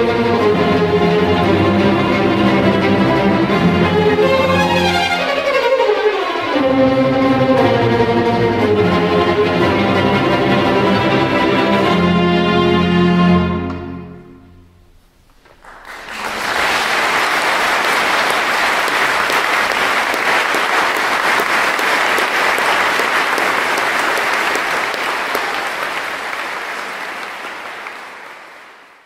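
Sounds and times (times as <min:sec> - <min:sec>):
audience clapping: 0:15.2 - 0:29.0.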